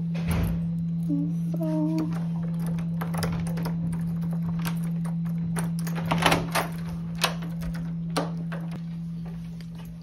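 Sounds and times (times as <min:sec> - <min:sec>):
steady low hum: 0:00.0 - 0:10.0
key turning in door lock: 0:02.1 - 0:08.8.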